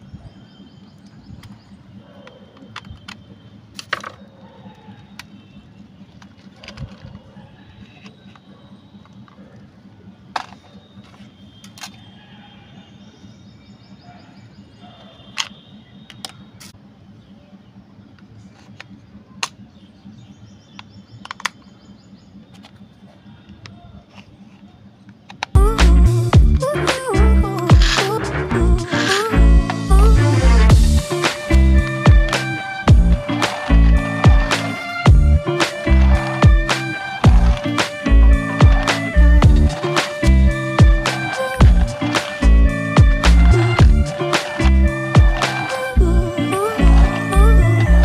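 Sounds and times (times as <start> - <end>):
plastic toy clicks and knocks: 2.2 - 4.2, 6.1 - 7.2, 10.3 - 12.0, 20.8 - 21.6, 28.9 - 29.3
batteries clicking into compartment: 20.8 - 21.7, 28.9 - 29.8.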